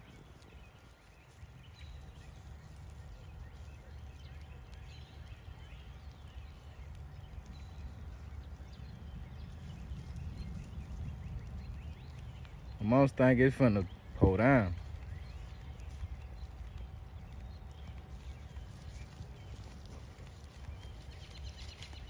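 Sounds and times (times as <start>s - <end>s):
faint bird chirps: 0.0s - 22.0s.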